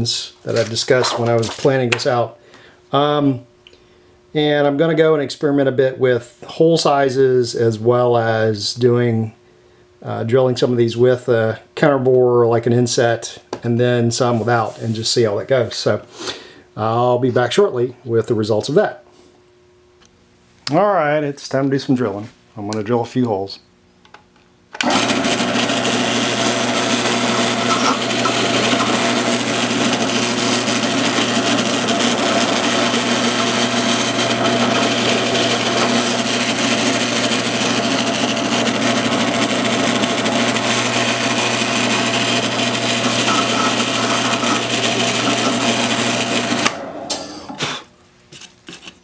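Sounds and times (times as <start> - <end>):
drill press boring into wood: 24.8 - 47.7.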